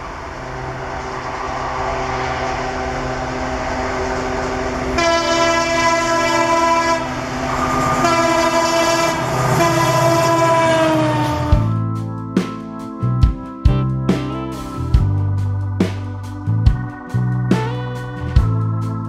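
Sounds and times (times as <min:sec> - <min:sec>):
diesel locomotive engine running: 0:00.0 - 0:19.0
locomotive air horn blasts: 0:04.9 - 0:11.7.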